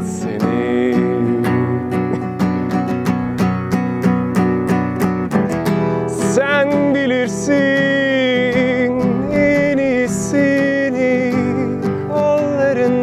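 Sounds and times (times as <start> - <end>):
acoustic guitar strumming: 0.0 - 13.0
wavering wordless melody: 0.0 - 13.0.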